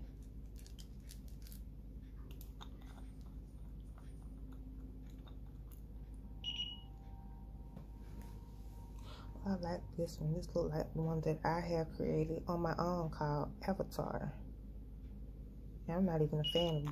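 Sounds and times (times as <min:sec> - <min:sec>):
short high-pitched beep: 0:06.4 - 0:06.9.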